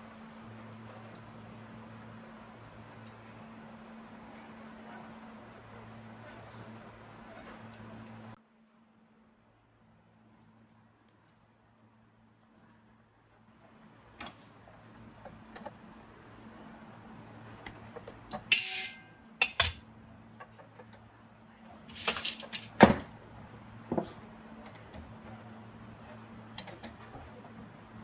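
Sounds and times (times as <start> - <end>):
faint steady hum: 0.0 - 28.0
metallic scrape: 18.5 - 19.2.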